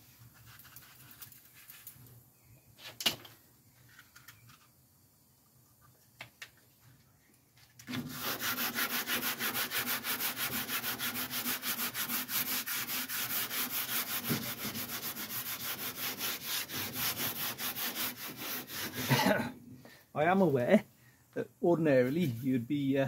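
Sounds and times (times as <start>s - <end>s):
wet sanding by hand: 7.9s - 19.4s.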